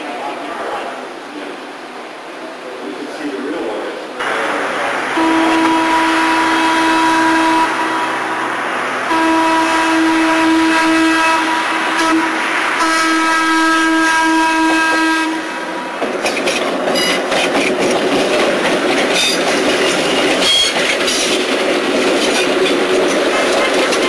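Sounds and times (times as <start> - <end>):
trolley air horn: 5.1 - 8.4, 9.0 - 15.8, 20.4 - 21.2
wheels clicking on rails: 16.0 - 24.0.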